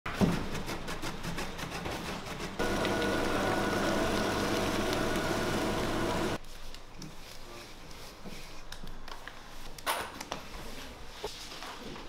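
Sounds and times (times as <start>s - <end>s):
electric meat grinder running: 2.6s - 6.4s.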